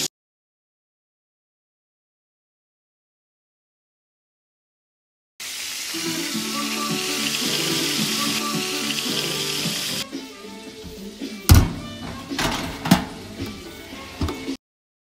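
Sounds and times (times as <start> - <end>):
food sizzling in a skillet: 5.4 - 12.4
music playing: 5.9 - 14.6.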